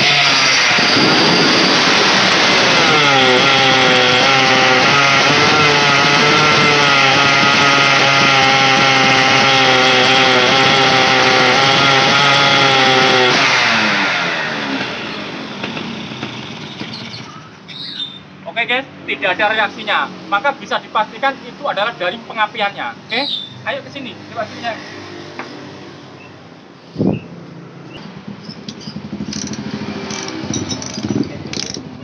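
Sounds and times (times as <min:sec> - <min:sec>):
two-stroke engine at high revs: 0:00.0 - 0:17.4, 0:27.9 - 0:32.0.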